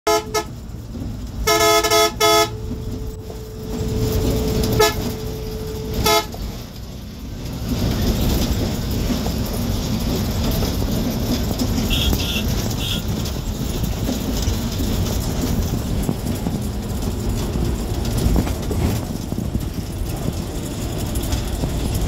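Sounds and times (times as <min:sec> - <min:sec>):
bus engine: 0:00.0 - 0:22.0
road noise: 0:00.0 - 0:22.0
bus horn honking: 0:00.1 - 0:00.7, 0:01.4 - 0:06.6, 0:11.7 - 0:13.3.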